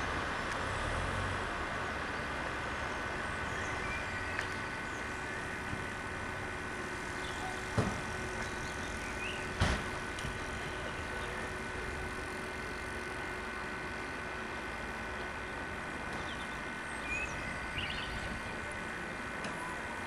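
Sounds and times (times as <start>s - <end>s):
street traffic noise: 0.0s - 20.0s.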